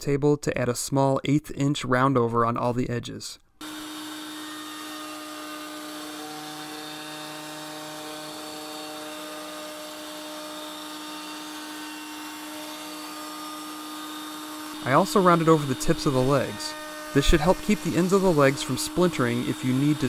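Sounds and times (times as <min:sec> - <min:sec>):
table router cutting wood: 0:03.6 - 0:20.0.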